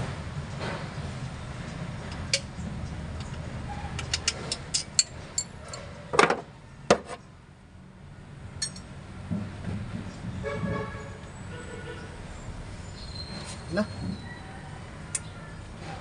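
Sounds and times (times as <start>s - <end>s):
metal clicks and knocks of tools: 4.0s - 6.4s, 8.6s - 8.9s.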